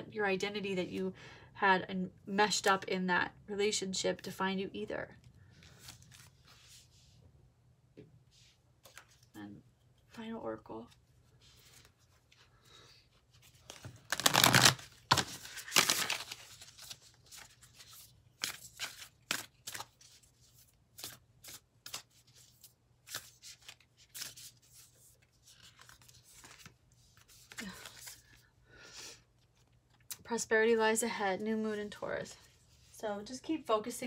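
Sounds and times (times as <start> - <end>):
cards being shuffled: 5.6 - 6.8, 8.8 - 9.3, 13.2 - 28.4.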